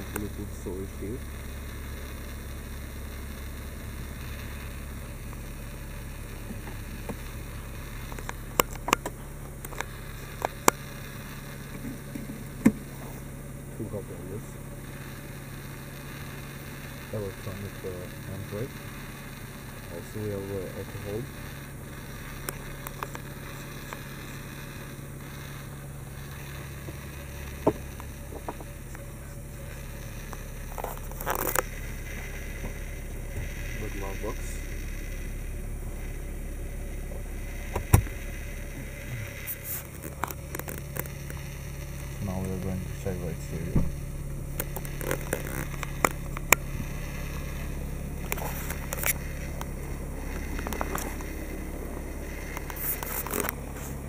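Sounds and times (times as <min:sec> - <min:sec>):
car cabin hum: 0:00.0 - 0:54.0
sharp clicks: 0:01.2 - 0:12.9, 0:18.2 - 0:35.2, 0:43.7 - 0:54.0.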